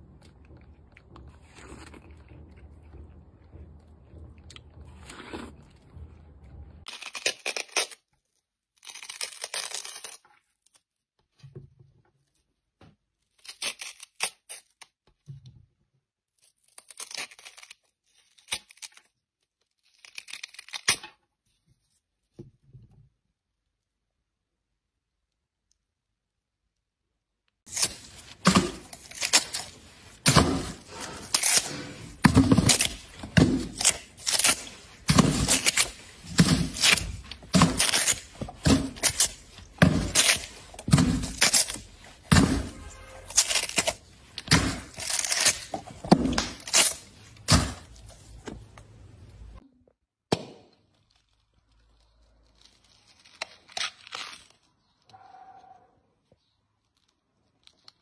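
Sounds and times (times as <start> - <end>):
watermelon rind cracking and tearing: 0.0 - 5.9, 6.8 - 11.0, 13.1 - 15.4, 16.3 - 21.4, 27.7 - 49.4, 50.3 - 55.2, 56.4 - 58.0.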